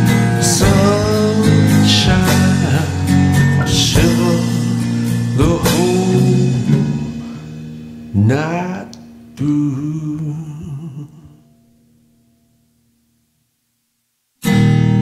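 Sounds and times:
man singing folk melody: 0:00.0 - 0:11.6
acoustic guitar: 0:00.0 - 0:13.0, 0:14.4 - 0:15.0.

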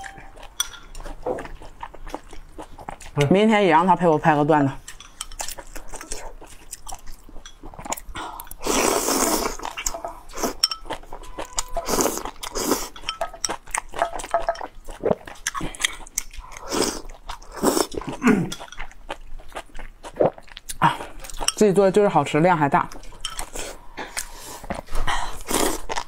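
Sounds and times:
wet chewing and mouth clicks: 0:00.0 - 0:03.5, 0:04.2 - 0:21.7, 0:22.8 - 0:26.0
noodles being slurped: 0:08.5 - 0:10.6.

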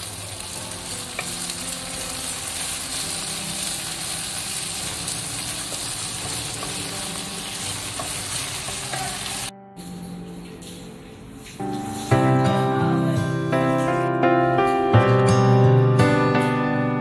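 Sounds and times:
food sizzling in a wok: 0:00.0 - 0:09.5
wooden spatula tossing food: 0:00.0 - 0:09.5.

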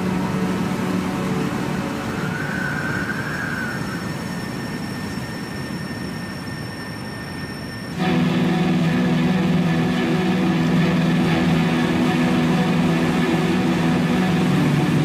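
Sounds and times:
rushing hiss: 0:00.0 - 0:06.7
held synth tones: 0:00.0 - 0:15.0.

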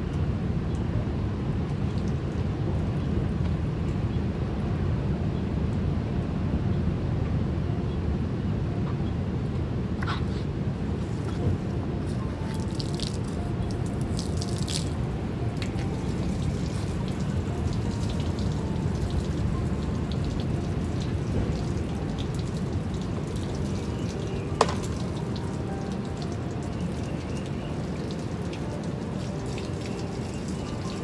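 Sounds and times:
steady low rumble: 0:00.0 - 0:29.2
water from hose splashing: 0:11.0 - 0:31.0
drip clicks: 0:12.1 - 0:31.0.

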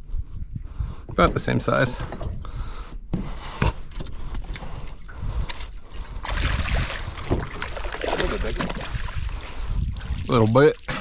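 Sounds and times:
water splashing against boat: 0:03.2 - 0:11.0.

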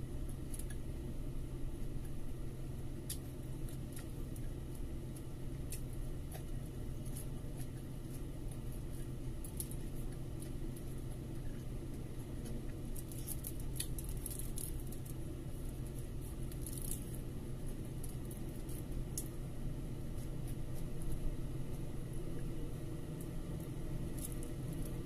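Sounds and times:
steady low hum: 0:00.0 - 0:25.0
soft chewing: 0:01.7 - 0:25.0
fingers tearing food on foil: 0:03.0 - 0:19.4.

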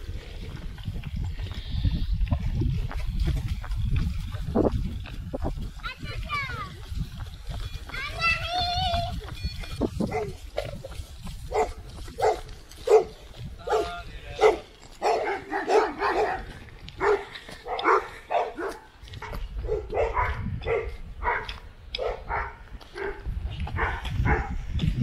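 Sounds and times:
wind rumble on microphone: 0:00.0 - 0:17.8, 0:18.8 - 0:25.0
dog barking: 0:10.1 - 0:10.4, 0:11.5 - 0:23.2, 0:23.8 - 0:24.6.

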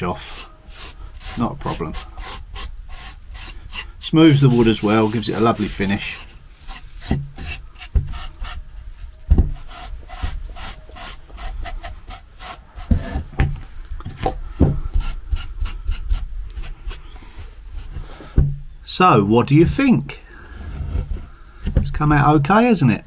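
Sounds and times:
wire wool scratching on wood: 0:00.0 - 0:13.3
dull knocks: 0:09.3 - 0:09.6, 0:12.9 - 0:14.9.

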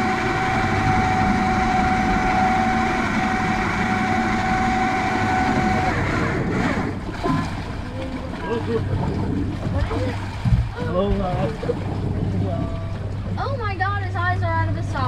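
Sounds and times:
fishing reel motor whine: 0:00.0 - 0:07.1
outboard motor idling: 0:00.0 - 0:15.0
water: 0:00.0 - 0:15.0.

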